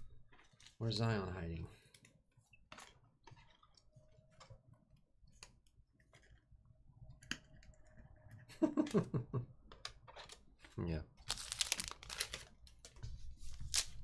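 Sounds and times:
trading cards flipped through: 0:11.3 - 0:14.0.

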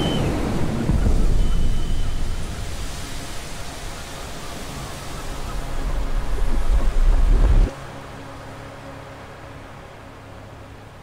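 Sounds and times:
ocean waves breaking: 0:00.0 - 0:07.7.

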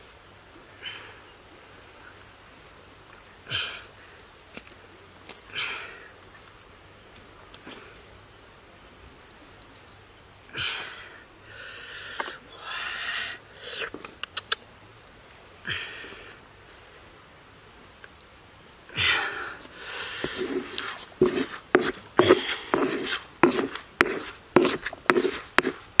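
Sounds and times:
handling noises: 0:20.2 - 0:26.0
stone pestle pounding in mortar: 0:20.4 - 0:26.0.

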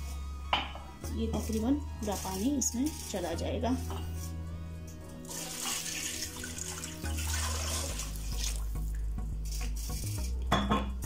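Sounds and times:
background music: 0:00.0 - 0:11.0
water pouring into a pot: 0:05.2 - 0:09.0.

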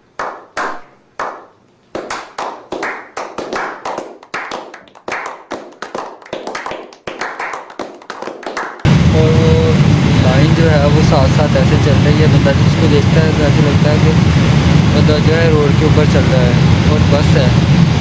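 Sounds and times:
people clapping with echo: 0:00.2 - 0:08.9.

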